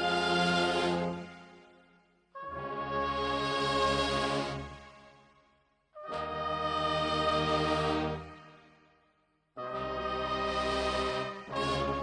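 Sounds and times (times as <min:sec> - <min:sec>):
brass band chords: 0:02.4 - 0:05.2, 0:09.6 - 0:12.0.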